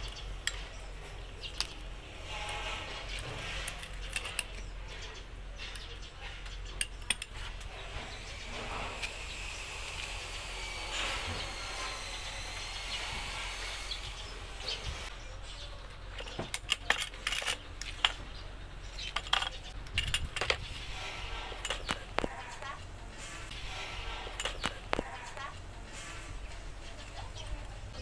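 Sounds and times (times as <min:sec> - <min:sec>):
metal clicks of small parts: 0:00.0 - 0:02.0, 0:03.1 - 0:07.7, 0:16.1 - 0:18.4, 0:19.0 - 0:20.7, 0:21.6 - 0:22.7, 0:24.3 - 0:25.6.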